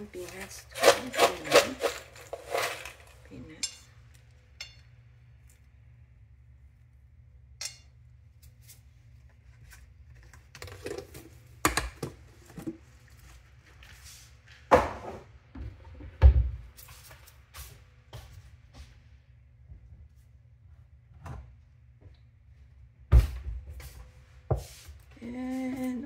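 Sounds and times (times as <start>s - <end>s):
kitchen items knocking and clattering: 0.0s - 3.9s, 14.7s - 16.6s.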